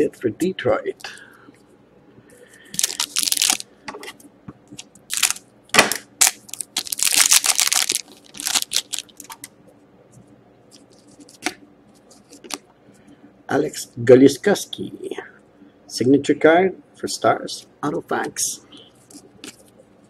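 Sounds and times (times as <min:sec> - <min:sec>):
card pack wrapper tearing and crinkling: 0:02.8 - 0:03.6, 0:05.1 - 0:05.4, 0:06.2 - 0:09.5.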